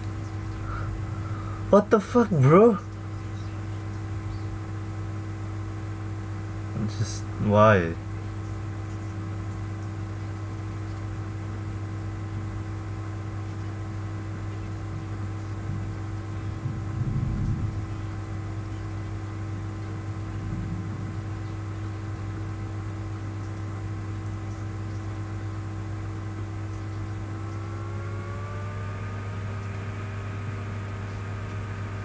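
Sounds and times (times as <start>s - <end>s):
low rumble: 0.0s - 4.8s, 15.6s - 24.8s
electrical mains hum: 0.0s - 32.0s.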